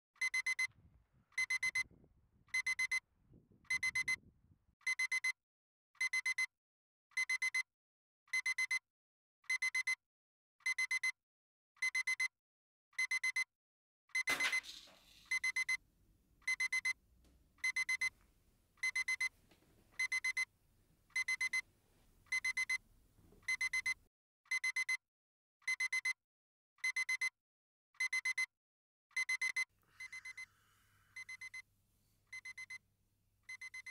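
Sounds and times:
alarm clock beeping: 1.4s - 1.9s, 2.5s - 3.0s, 14.2s - 15.8s, 16.4s - 17.0s, 17.6s - 18.1s, 18.8s - 19.3s, 20.0s - 20.5s, 21.1s - 21.6s, 22.3s - 22.8s, 23.5s - 24.0s, 29.2s - 30.5s, 31.1s - 31.6s.

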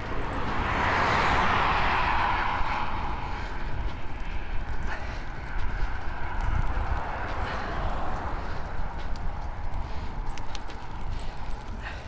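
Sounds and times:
wind on microphone: 0.0s - 11.9s
vehicle passing: 0.0s - 12.0s.

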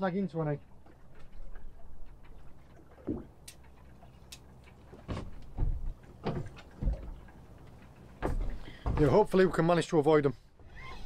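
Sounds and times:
dull thumps and knocks: 3.0s - 3.4s, 4.9s - 9.7s
faint clicks: 3.4s - 8.1s.

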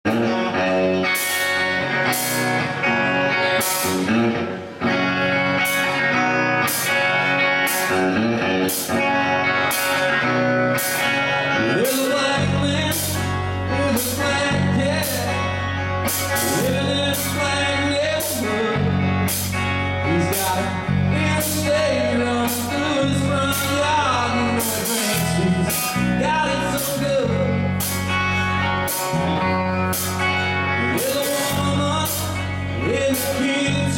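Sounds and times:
bass guitar: 0.0s - 33.9s
electric guitars: 0.0s - 33.9s
man singing: 9.6s - 27.9s, 30.8s - 33.9s.

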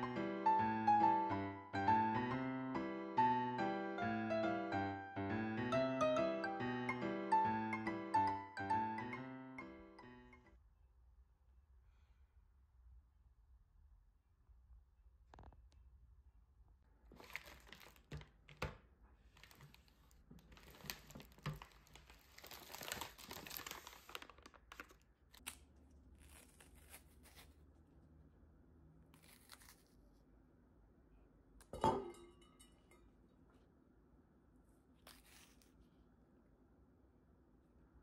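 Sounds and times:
plastic packaging rustling: 17.1s - 27.5s.

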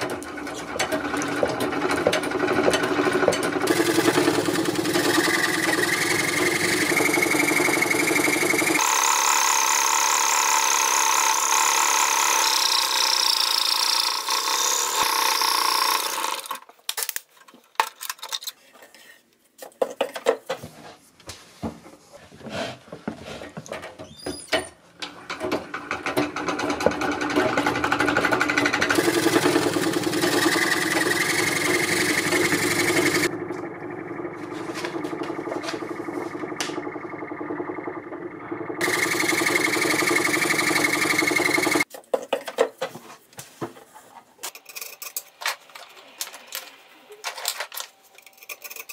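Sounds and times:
scroll saw cutting metal: 0.0s - 16.6s, 25.8s - 33.3s, 38.8s - 41.9s.

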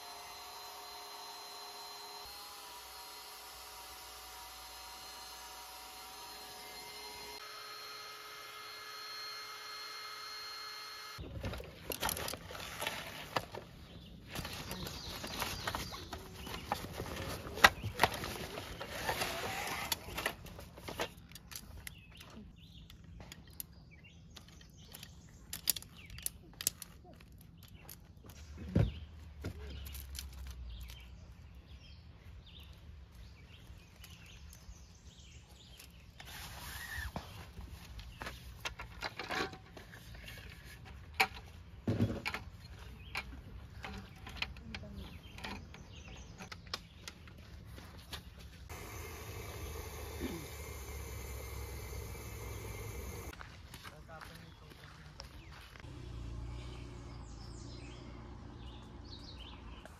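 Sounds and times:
electric motor humming: 0.0s - 11.2s, 18.0s - 20.3s, 48.7s - 53.4s.

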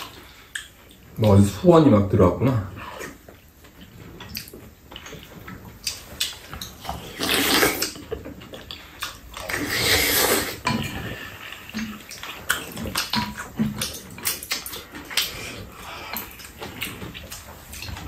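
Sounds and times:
slurping soup off a spoon: 7.0s - 7.9s, 9.4s - 10.6s.

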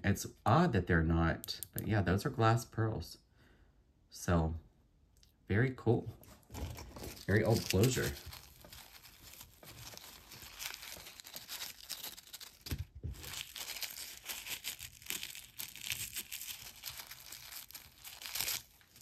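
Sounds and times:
wrapping crinkling by hand: 6.2s - 19.0s.

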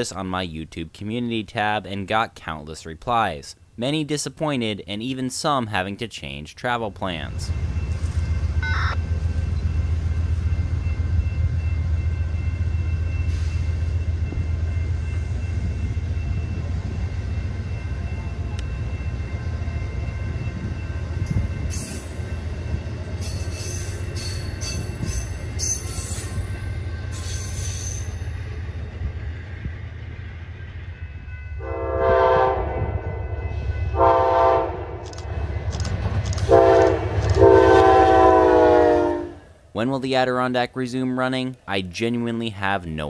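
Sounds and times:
train wheels rumbling on rails: 7.0s - 40.3s
sharp high train clatter: 34.9s - 38.2s.

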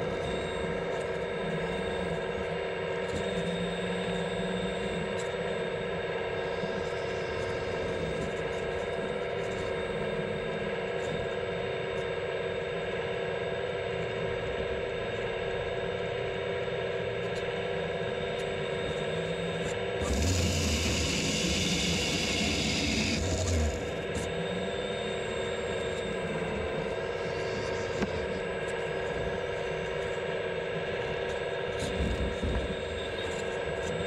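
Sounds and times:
hydraulic pump whining: 19.6s - 24.4s
small chainsaw cutting: 20.0s - 24.3s.

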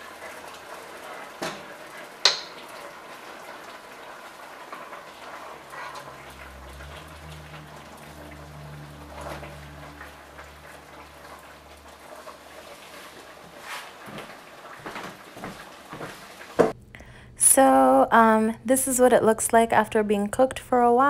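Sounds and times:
meat sizzling in pot: 0.0s - 16.8s
meat knocking against pot: 1.4s - 2.7s
low steady hum: 16.7s - 21.0s.

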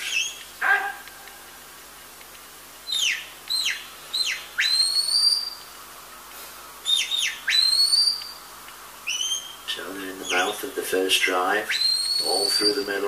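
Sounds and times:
shepherd's whistle commands: 11.7s - 13.0s.

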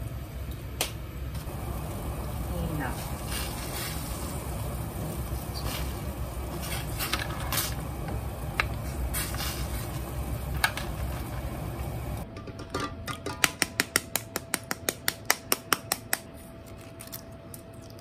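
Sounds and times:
water boiling in a pot: 0.0s - 12.2s.

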